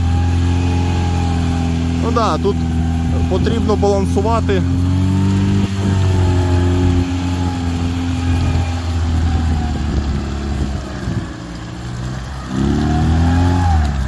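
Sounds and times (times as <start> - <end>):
off-road vehicle engine pulling: 0.0 - 14.0.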